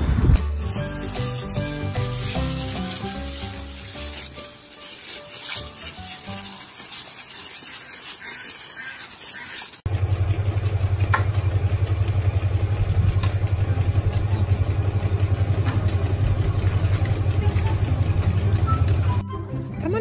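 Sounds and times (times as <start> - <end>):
garden hose water spray hissing: 0.6 - 10.8.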